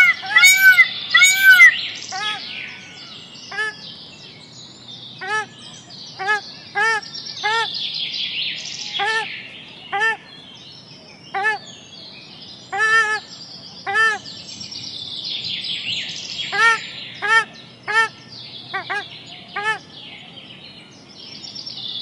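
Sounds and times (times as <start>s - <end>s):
bird repeating arching call: 0.0s - 2.4s
small birds chirping and twittering: 0.0s - 22.0s.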